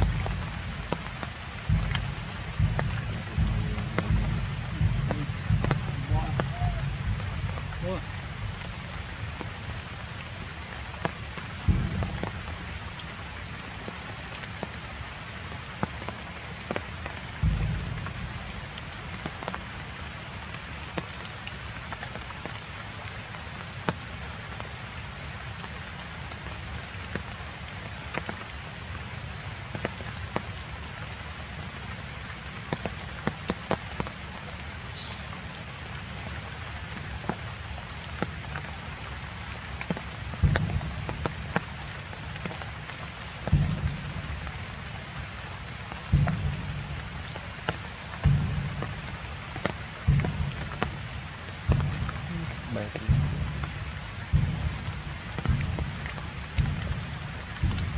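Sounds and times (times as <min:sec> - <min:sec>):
low thumps: 0:00.0 - 0:09.5, 0:11.7 - 0:12.6, 0:17.4 - 0:19.6, 0:40.3 - 0:41.7, 0:43.4 - 0:44.6, 0:46.1 - 0:47.5, 0:48.2 - 0:57.9
steady rain falling: 0:00.0 - 0:57.9.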